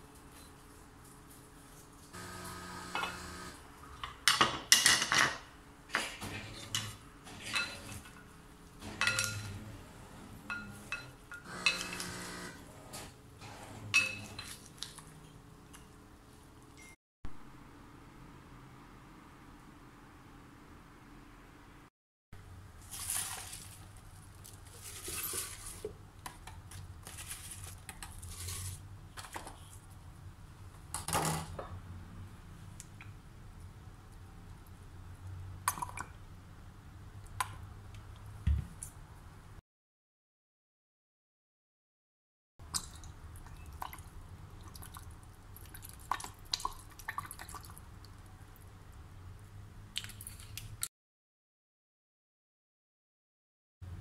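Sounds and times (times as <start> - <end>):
wet rustle of vegetables: 22.6 - 30.0, 42.7 - 48.7, 49.9 - 50.9
basil leaves rustling: 22.8 - 25.9, 27.0 - 28.8.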